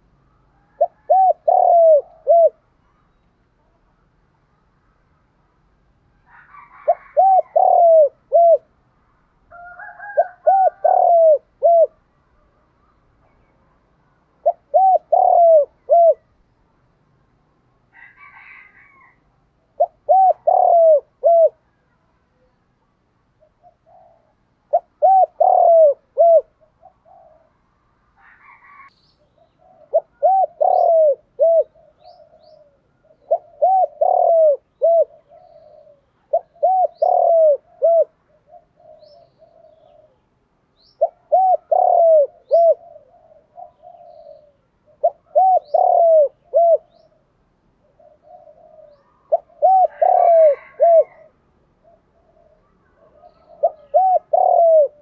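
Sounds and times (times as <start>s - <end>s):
dove cooing: 0.0s - 4.2s, 6.1s - 8.8s, 9.5s - 16.6s, 17.9s - 55.0s
soft murmuring coos: 0.0s - 5.2s, 6.1s - 8.8s, 9.5s - 16.4s, 17.9s - 40.4s, 41.0s - 55.0s
small birds chirping: 0.0s - 5.5s, 18.0s - 55.0s.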